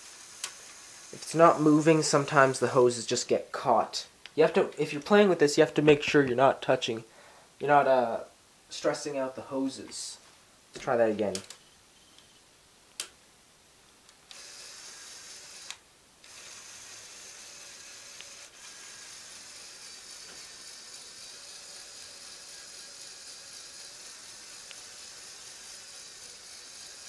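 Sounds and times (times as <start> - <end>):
toy electric motor running: 0.0 - 2.6, 14.3 - 27.0.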